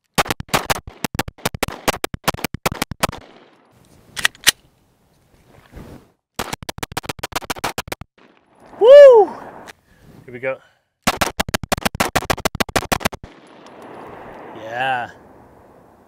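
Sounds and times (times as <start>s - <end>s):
rapid pistol shots: 0.1s - 3.5s, 11.0s - 13.9s.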